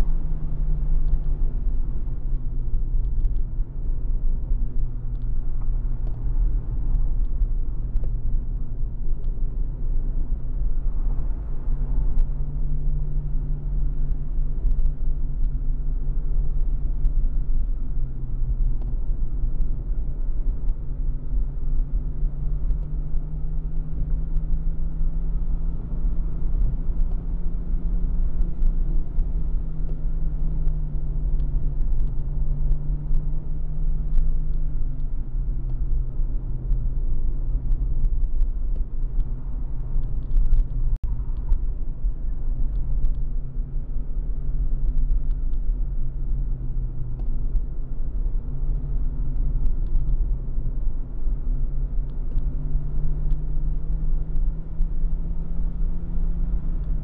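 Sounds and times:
road and wind noise: 0.0s - 57.0s.

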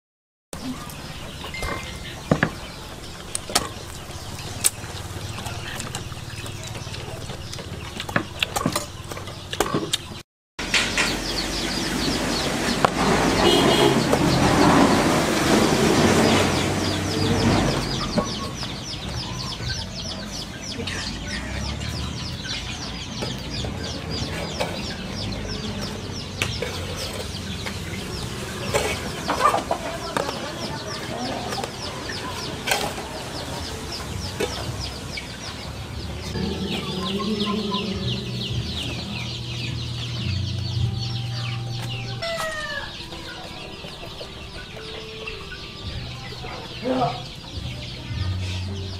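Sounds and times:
noisy rumble: 0.6s - 42.2s
chickens clucking: 0.6s - 48.9s
high-pitched chirping: 36.4s - 46.8s.

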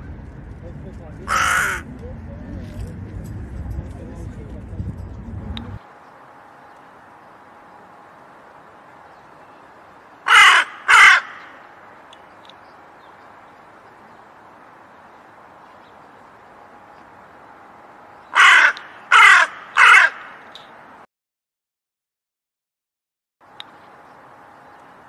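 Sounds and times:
crow cawing: 1.3s - 1.9s, 10.2s - 11.8s, 18.3s - 20.5s.

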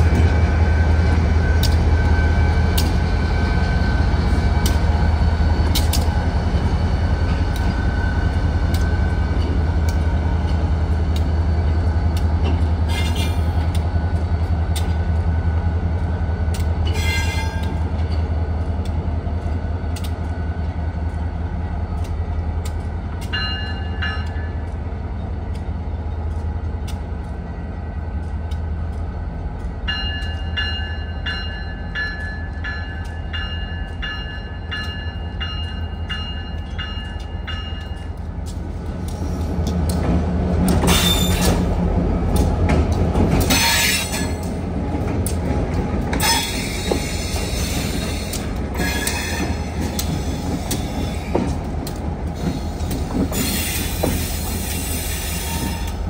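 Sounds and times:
locomotive engine rumble: 0.0s - 56.0s
locomotive bell ringing: 23.3s - 24.7s, 29.8s - 38.2s
wheels clicking over rail joints: 28.1s - 56.0s.

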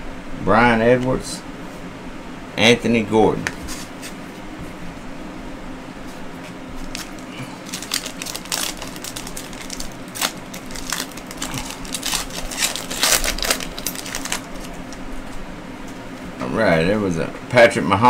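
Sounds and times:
foil wrapper crinkling: 6.7s - 15.4s.

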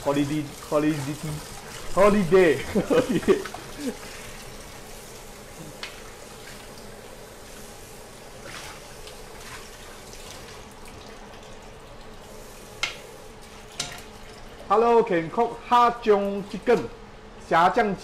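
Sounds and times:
frying pan scrubbed: 0.0s - 10.7s.

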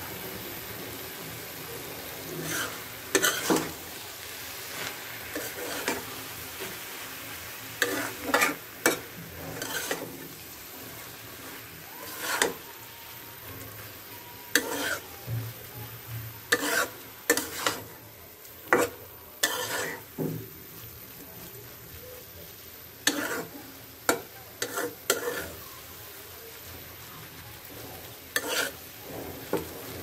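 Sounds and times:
quiet frying sizzle: 0.0s - 30.0s
metal spatula scraping iron pan: 2.3s - 3.8s, 5.3s - 6.1s, 7.8s - 10.4s, 11.4s - 12.6s, 14.5s - 15.1s, 16.5s - 17.9s, 18.6s - 20.2s, 23.0s - 25.6s, 28.3s - 30.0s.

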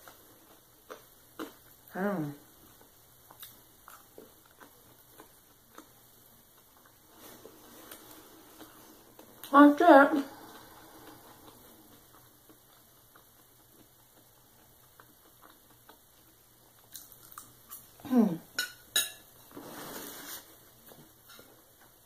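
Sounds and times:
cutlery clinking on ceramic plate: 18.6s - 19.3s.

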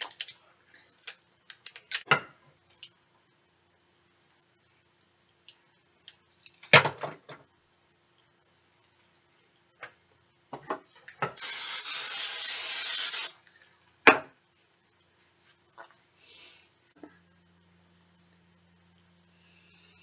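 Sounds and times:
aerosol spray can hissing: 11.4s - 13.4s.

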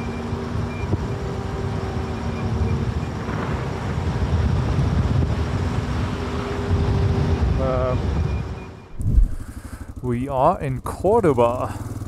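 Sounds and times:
motorcycle engine running: 6.6s - 12.0s
engine clacking: 7.4s - 12.0s.

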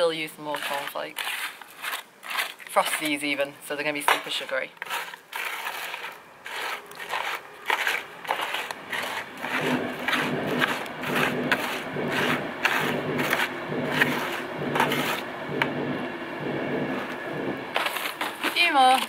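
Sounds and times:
fork scraping metal tin: 0.2s - 3.3s, 3.9s - 15.2s
cereal crunching and crackling: 0.5s - 3.2s, 4.2s - 13.5s.

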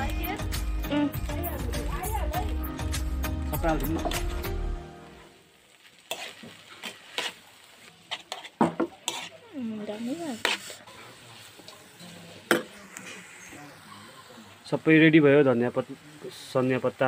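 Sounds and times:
low sizzle: 0.0s - 17.0s
utensil scraping frying pan: 6.0s - 14.1s.

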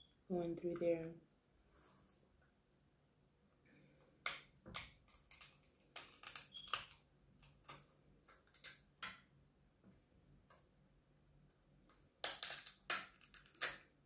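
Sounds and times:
crab shell cracking: 12.2s - 13.9s.

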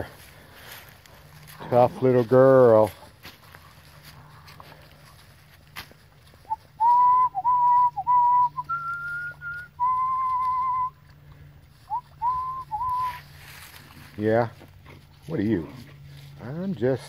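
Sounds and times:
person whistling a tune: 6.5s - 11.0s, 11.9s - 13.2s.

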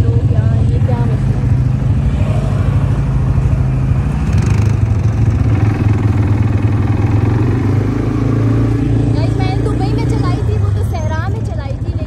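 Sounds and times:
quad bike engine running: 0.0s - 12.0s.

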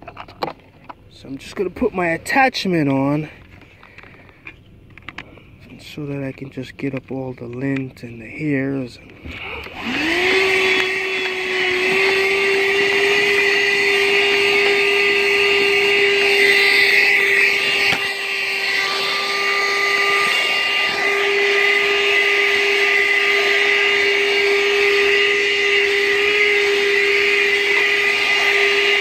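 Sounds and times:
handheld vacuum motor whining: 0.0s - 29.0s
suction rush: 9.3s - 29.0s.

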